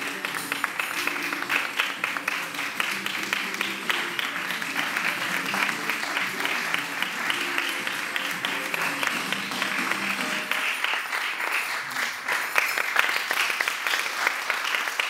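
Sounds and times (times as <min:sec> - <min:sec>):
music playing: 0:00.0 - 0:11.1
audience applauding: 0:00.0 - 0:15.0.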